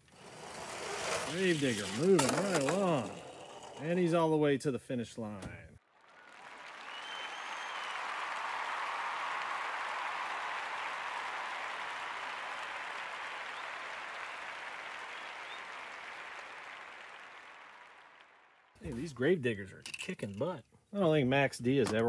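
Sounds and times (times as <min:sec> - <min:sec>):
crowd applause and cheering: 0:05.9 - 0:18.7.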